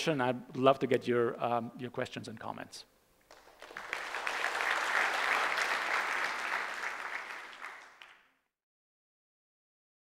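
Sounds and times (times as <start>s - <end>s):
audience applauding: 3.3s - 8.4s.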